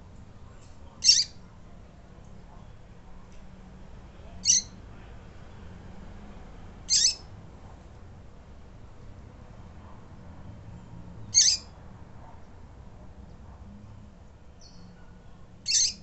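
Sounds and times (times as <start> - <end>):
bird high call notes: 1.0 - 1.3.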